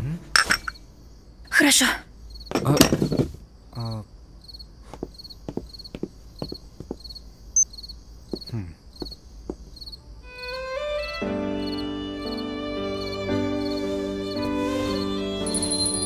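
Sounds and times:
soft music: 0.0s - 1.0s, 10.2s - 16.0s
crickets chirping: 0.0s - 16.0s
light footsteps: 4.8s - 7.2s, 8.2s - 9.9s.

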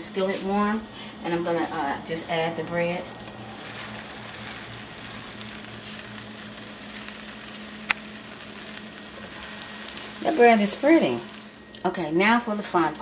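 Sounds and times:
bread sizzling in a skillet: 2.9s - 13.0s.

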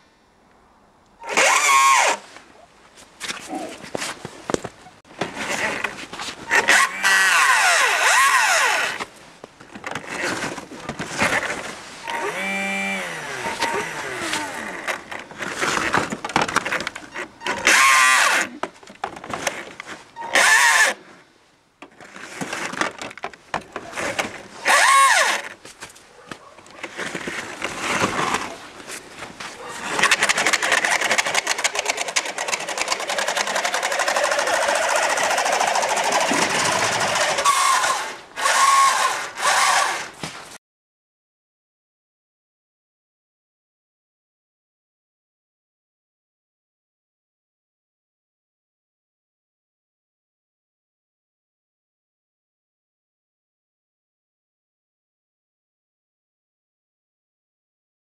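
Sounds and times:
wheels spinning in snow: 10.0s - 18.5s, 26.8s - 40.2s
electric motor whining: 12.1s - 14.9s, 33.1s - 40.1s.

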